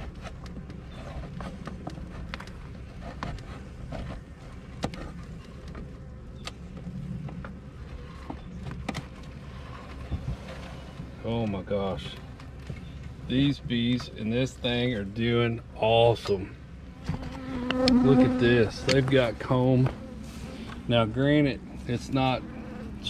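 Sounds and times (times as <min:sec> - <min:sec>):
bees buzzing: 0:16.7 - 0:23.0.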